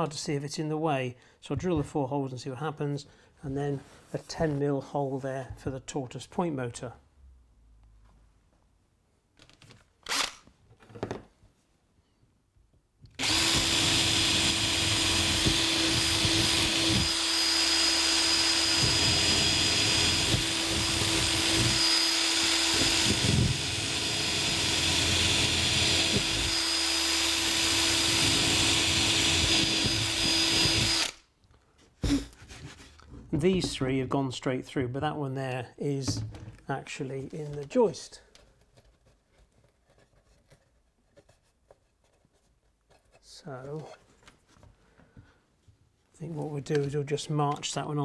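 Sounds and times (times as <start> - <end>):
cordless drill boring: 10.0 - 10.4, 13.2 - 31.3.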